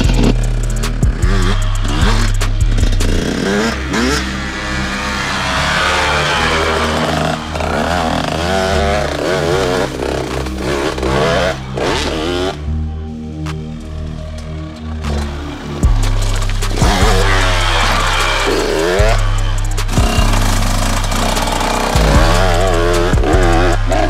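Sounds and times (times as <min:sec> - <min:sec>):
dirt bike engine revving: 0:00.0 - 0:12.9, 0:14.9 - 0:24.0.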